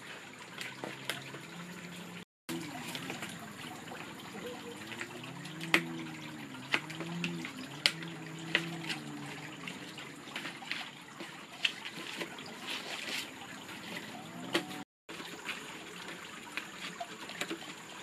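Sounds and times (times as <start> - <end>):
water trickling: 0.0 - 18.0
faint low wavering hum: 0.2 - 11.6.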